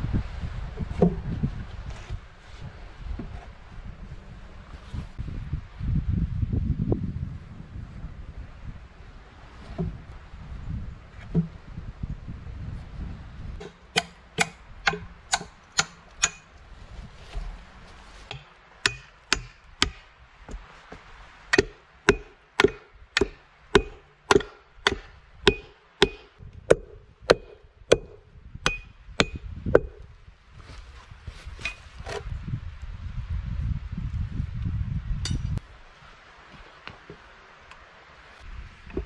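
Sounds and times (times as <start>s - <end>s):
hatchet striking wooden log: 13.6s - 16.4s, 18.3s - 20.6s, 21.5s - 30.0s.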